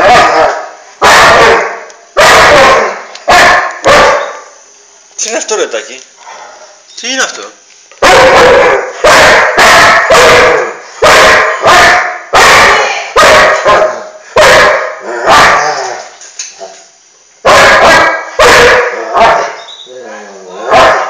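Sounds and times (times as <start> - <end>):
dog barking loudly: 0.0 - 4.4, 8.0 - 15.7, 17.4 - 19.6, 20.6 - 21.0.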